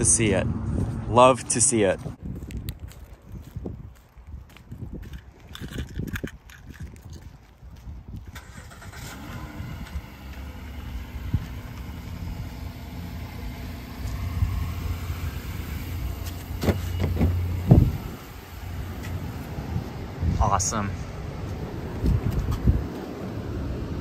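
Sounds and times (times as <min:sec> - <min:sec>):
car engine starting and idling: 0:08.2 - 0:20.2.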